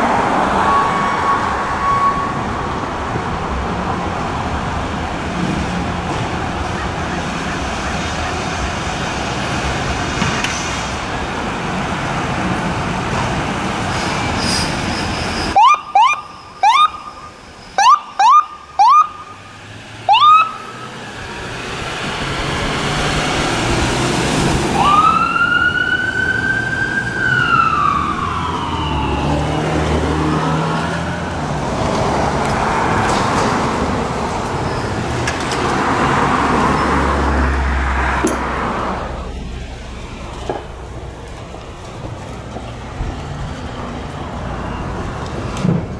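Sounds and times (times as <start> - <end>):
ambulance siren whooping and wailing: 0.0 - 2.6, 15.5 - 19.4, 20.0 - 21.0, 24.5 - 31.6
vehicle engine and road noise: 0.0 - 45.9.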